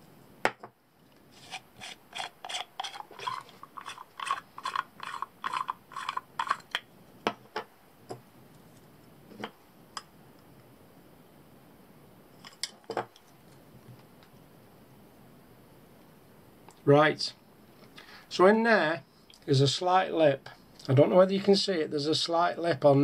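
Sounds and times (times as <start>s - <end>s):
plastic nut grating while unscrewed: 1.3s - 6.8s.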